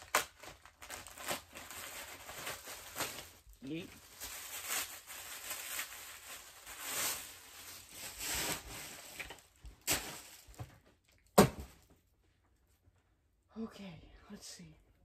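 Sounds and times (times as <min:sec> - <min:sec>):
plastic packaging crinkling: 0:00.0 - 0:11.3.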